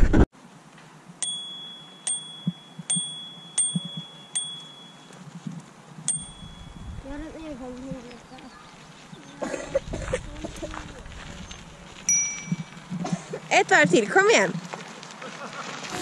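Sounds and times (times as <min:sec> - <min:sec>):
bicycle bell ringing: 0:01.2 - 0:05.3, 0:06.0 - 0:07.2, 0:12.1 - 0:12.8.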